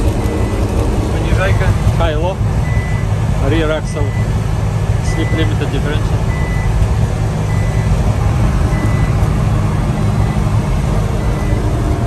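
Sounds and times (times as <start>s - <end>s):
truck engine and road noise: 0.0s - 12.0s
speed alarm beeps: 2.6s - 3.1s, 4.0s - 4.3s, 5.1s - 5.6s, 6.3s - 6.8s, 7.5s - 8.0s, 8.7s - 9.2s, 11.2s - 11.7s.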